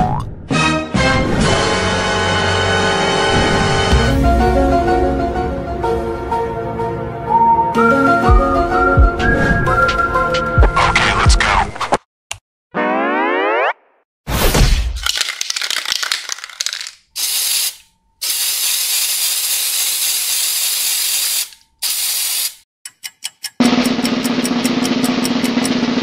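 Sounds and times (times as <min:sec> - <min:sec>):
spray paint can hissing: 0:15.0 - 0:22.6.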